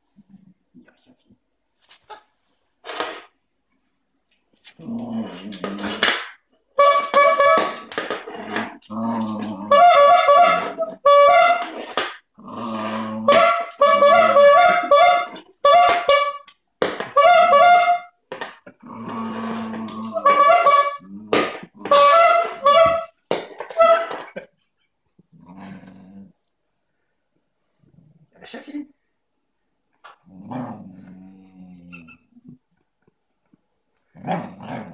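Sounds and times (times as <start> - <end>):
bulb horn honking: 6.8 - 7.9, 9.7 - 11.8, 13.3 - 18.2, 20.0 - 21.1, 21.8 - 24.3
dog growling: 8.3 - 9.7, 12.4 - 13.3, 18.8 - 20.2, 25.3 - 26.4, 30.1 - 32.6, 34.1 - 34.9.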